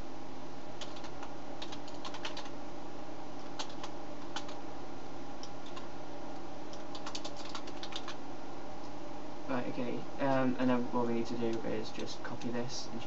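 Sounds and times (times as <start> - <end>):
background hum: 0.0 - 13.0
keyboard typing clicks: 0.8 - 2.5, 3.4 - 4.6, 5.4 - 5.9, 6.7 - 8.2.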